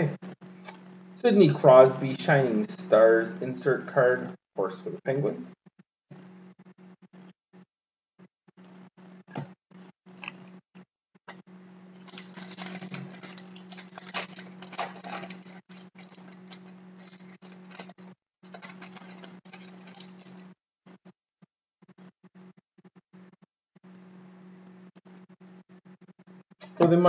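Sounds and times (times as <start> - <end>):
steady low hum: 0.0 - 7.3, 11.2 - 21.0
foil wrapper crinkling: 11.9 - 20.5
cards rustling: 12.0 - 20.4.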